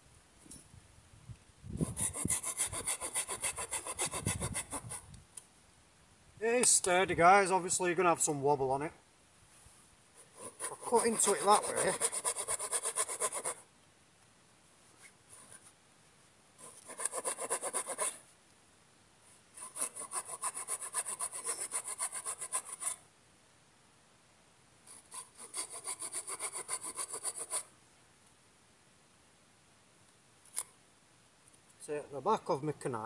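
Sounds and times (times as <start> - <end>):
hand saw cutting wood: 1.8 - 5.0, 10.3 - 13.6, 16.6 - 18.2, 19.6 - 23.0, 25.0 - 27.7.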